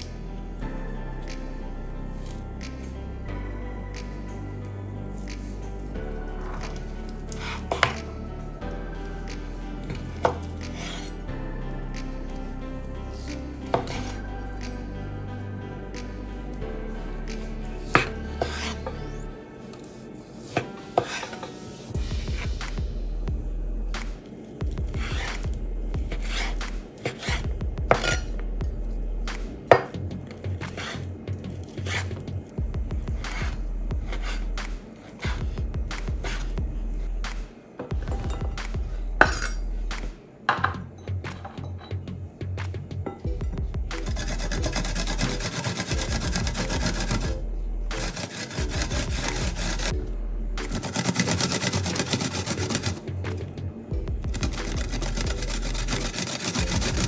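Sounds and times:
garlic rasping on metal grater: 44.1 - 47.3, 48.0 - 49.9, 50.7 - 53.0, 54.3 - 57.0
knife slicing meat: 44.1 - 47.3, 48.0 - 49.9.

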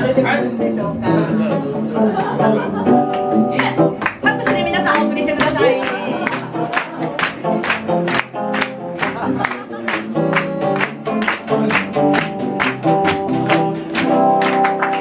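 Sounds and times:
live band playing upbeat tune: 0.0 - 15.0
audience clapping along: 3.0 - 15.0.

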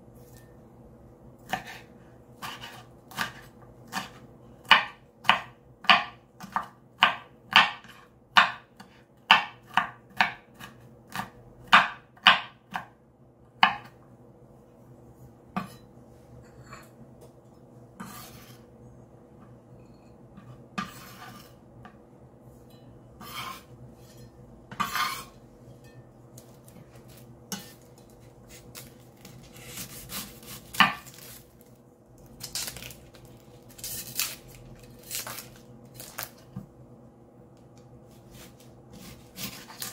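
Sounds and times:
faint steady hum: 0.0 - 39.9
knife chopping on cutting board: 1.5 - 1.8, 2.4 - 12.9, 13.6 - 13.9, 20.4 - 21.5, 24.7 - 25.3, 28.5 - 31.3, 38.3 - 39.9
knife tapping and scraping board: 15.5 - 15.9, 18.0 - 18.6, 19.4 - 22.0, 22.7 - 28.9
onion peeling rustle: 26.4 - 36.5, 38.1 - 39.9.

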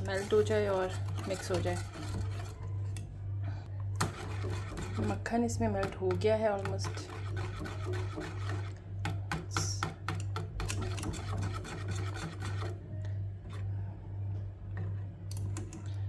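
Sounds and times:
whisk scraping a metal saucepan: 0.0 - 3.0, 4.0 - 12.8
low pulsing hum: 0.0 - 16.0.

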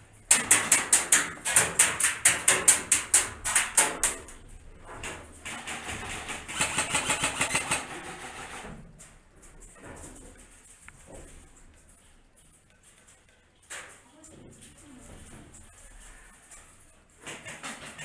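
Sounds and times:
airsoft gunfire rattle: 5.5 - 8.6.

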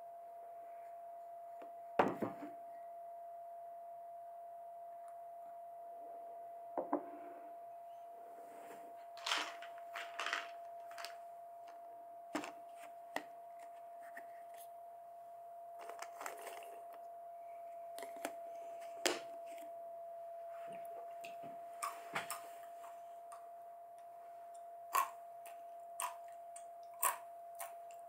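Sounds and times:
faint steady hum: 0.0 - 28.0
plastic jar clattering: 9.2 - 11.2.

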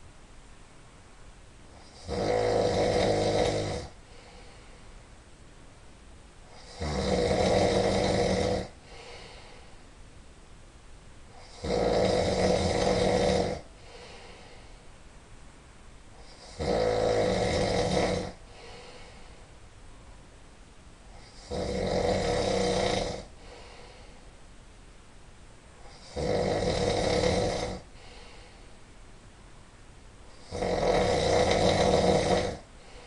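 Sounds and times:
man snoring loudly: 1.8 - 4.0, 6.5 - 9.4, 11.3 - 14.1, 16.2 - 18.8, 21.2 - 23.7, 25.8 - 28.2, 30.3 - 32.9.

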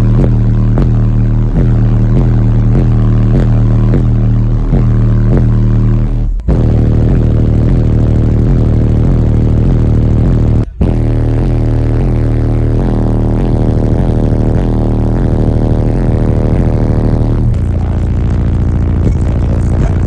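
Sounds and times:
bass-heavy music on subwoofers: 0.0 - 20.0.

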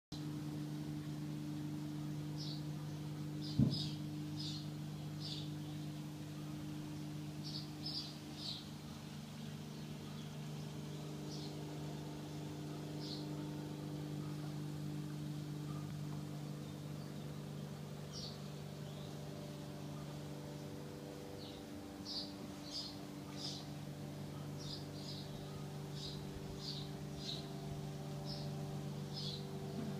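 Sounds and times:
machine humming: 0.2 - 29.9
small birds chirping: 2.0 - 29.9.

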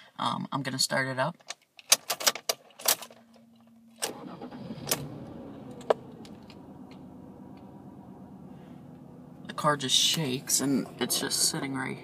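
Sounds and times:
keys clicking in ignition: 1.5 - 7.7
car engine starting and idling: 3.4 - 12.0.

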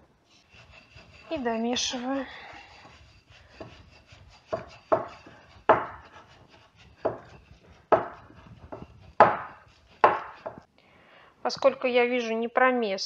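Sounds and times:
whisk scraping: 0.0 - 10.7
whisk beating dough in bowl: 0.4 - 10.7.

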